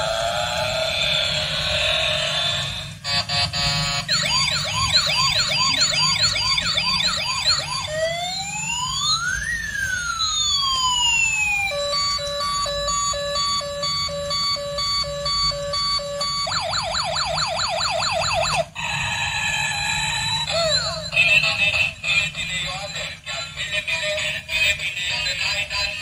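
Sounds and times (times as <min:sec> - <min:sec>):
rising and falling siren wail: 0:00.0 - 0:21.4
yelping siren: 0:00.0 - 0:21.7
rapid beeping alarm: 0:03.0 - 0:18.6
electronic chirpy tune: 0:03.1 - 0:08.2, 0:10.2 - 0:17.4.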